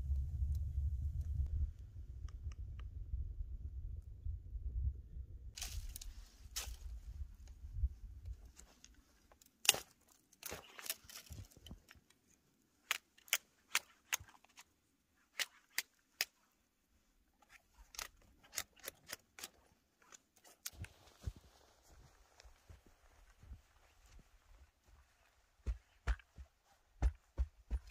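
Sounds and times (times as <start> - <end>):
knife snapping thin branches: 5.6 - 6.9, 9.6 - 11.6, 17.9 - 19.6.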